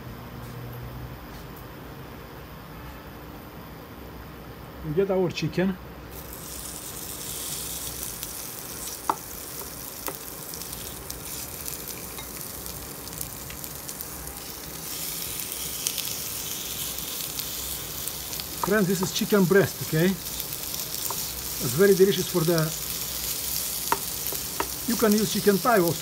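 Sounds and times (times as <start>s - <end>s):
chicken sizzling in a frying pan: 6.1s - 26.0s.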